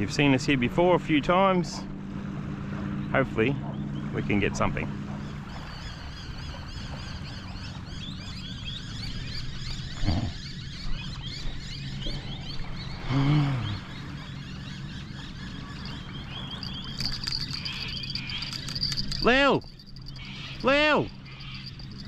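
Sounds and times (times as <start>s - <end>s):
steady low hum: 0.0s - 22.0s
quick high chirps: 15.7s - 22.0s.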